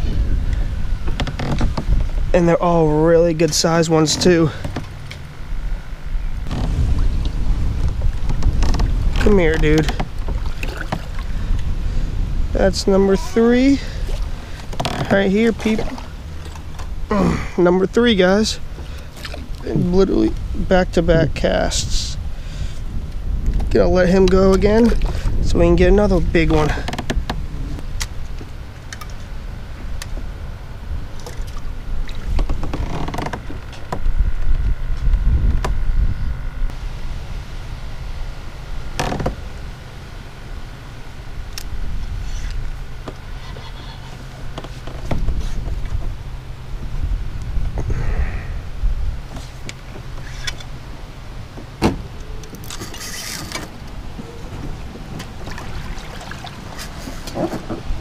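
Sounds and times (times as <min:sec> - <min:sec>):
steady low rumble: 0:00.0 - 0:58.0
light water splashing: 0:06.8 - 0:11.7, 0:13.8 - 0:17.1, 0:18.6 - 0:19.9, 0:52.4 - 0:58.0.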